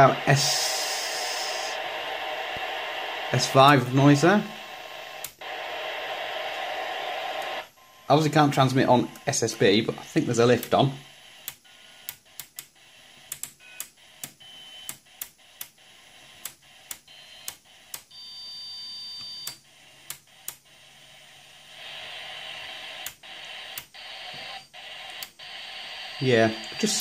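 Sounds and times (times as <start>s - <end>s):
radio static: 0.0s - 11.5s, 21.0s - 27.0s
steady radio whistles: 0.0s - 13.2s, 18.2s - 27.0s.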